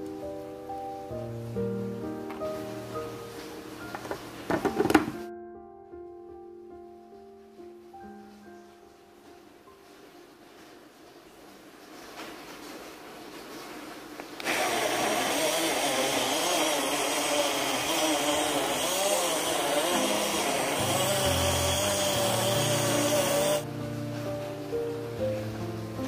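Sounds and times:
blender motor whining: 0:14.4 - 0:23.6.

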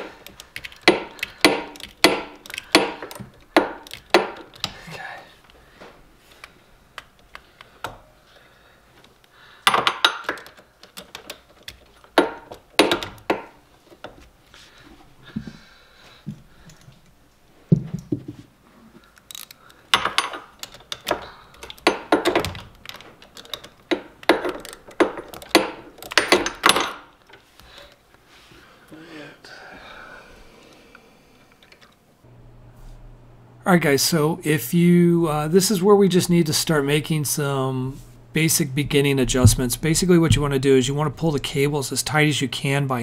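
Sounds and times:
metal tools clicking and clanking: 0:19.1 - 0:28.0
dull thunk: 0:38.9 - 0:40.7.

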